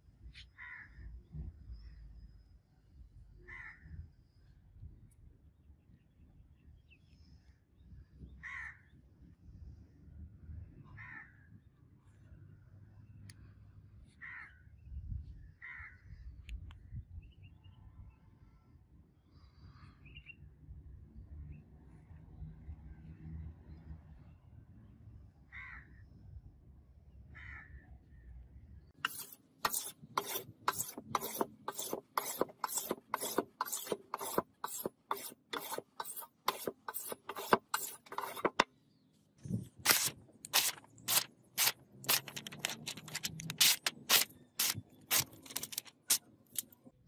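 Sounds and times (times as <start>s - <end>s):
blade slicing paper: 29.0s - 38.6s, 39.8s - 46.7s
whetstone rubbing steel blade: 29.0s - 38.6s, 39.9s - 46.2s.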